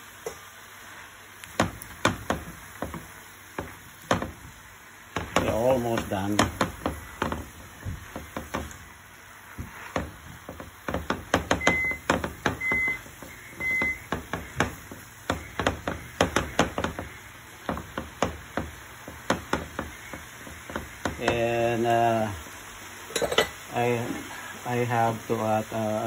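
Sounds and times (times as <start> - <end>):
wooden spatula scraping frying pan: 1.6 - 21.4
short electronic beeps: 11.6 - 12.0, 12.6 - 14.1.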